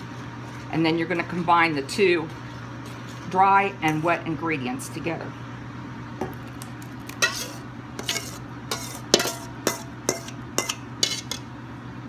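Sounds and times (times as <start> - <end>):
metal spoon scraping steel bowl: 7.2 - 11.4.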